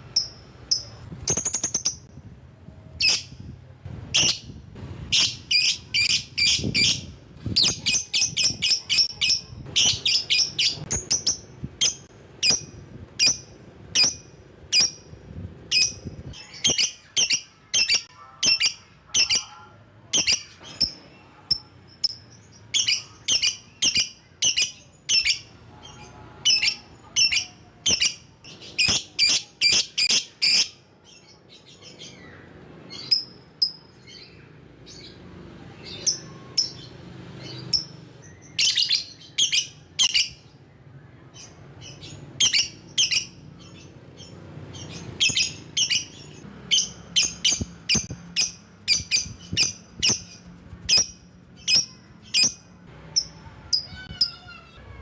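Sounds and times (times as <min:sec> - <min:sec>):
bird chirping shrilly: 0:04.2 - 0:19.5, 0:44.7 - 0:54.6.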